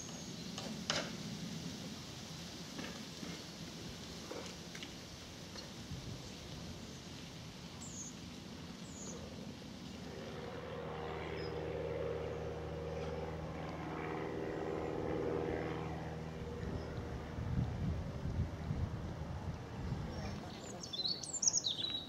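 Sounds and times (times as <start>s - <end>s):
bird chirps: 20.1s - 22.0s.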